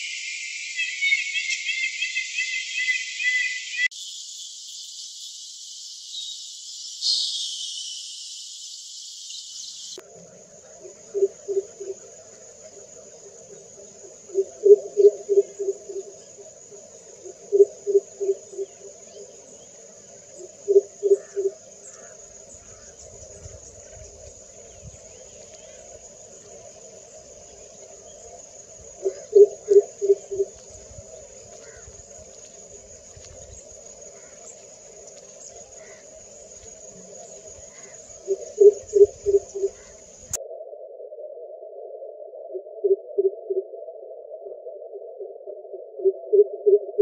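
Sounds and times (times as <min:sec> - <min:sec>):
insects chorus: 0:00.0 - 0:40.4
bird giving deep booming hoots: 0:10.6 - 0:12.4, 0:13.8 - 0:16.4, 0:17.2 - 0:19.0, 0:20.4 - 0:23.0, 0:28.8 - 0:30.6, 0:37.6 - 0:40.3.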